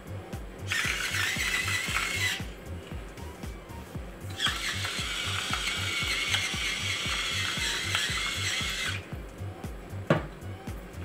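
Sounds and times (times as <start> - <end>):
background music with beat: 0.0 - 11.0
seasoning mill grinding: 0.7 - 2.5, 4.3 - 9.0.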